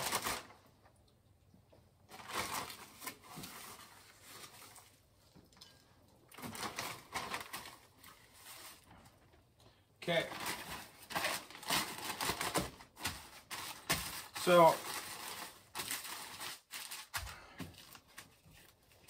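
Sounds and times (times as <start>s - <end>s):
plastic bag rustling: 0.0s - 0.7s, 2.1s - 5.3s, 6.3s - 9.4s, 10.0s - 19.0s
rustling and patting of crumbs: 10.4s - 19.0s.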